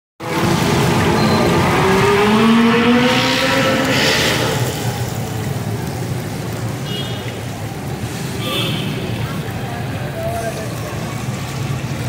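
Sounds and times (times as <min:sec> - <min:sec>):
vehicle engine revving past: 0:00.2 - 0:05.1.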